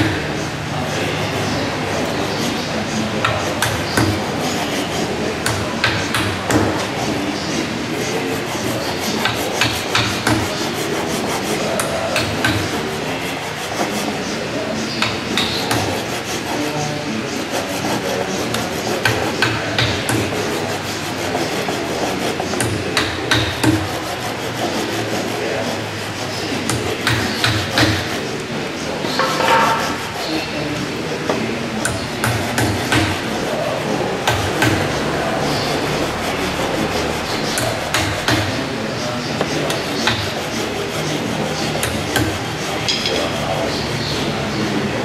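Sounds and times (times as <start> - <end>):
workshop din: 0.0 - 45.0
hammer strikes on wood: 3.2 - 4.3, 5.4 - 6.9, 9.2 - 10.6, 11.8 - 12.8, 15.0 - 16.0, 18.5 - 20.6, 22.6 - 24.0, 26.6 - 28.2, 31.8 - 33.2, 37.5 - 38.6, 41.8 - 43.2.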